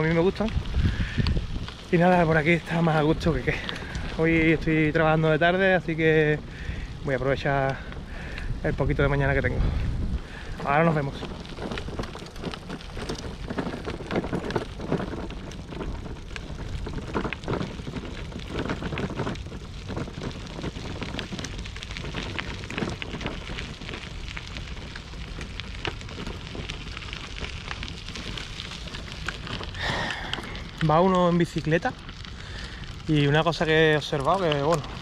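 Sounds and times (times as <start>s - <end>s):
wind on microphone: 0.0s - 26.6s
bicycle clicks and rattles: 0.0s - 35.0s
bicycle tyres crunching on gravel: 0.0s - 35.0s.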